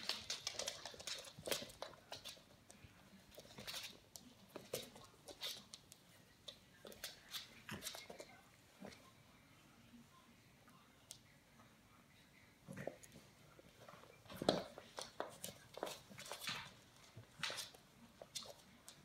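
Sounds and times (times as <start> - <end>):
puppy claws clicking on wooden floor: 0.0 - 8.3, 14.3 - 19.0.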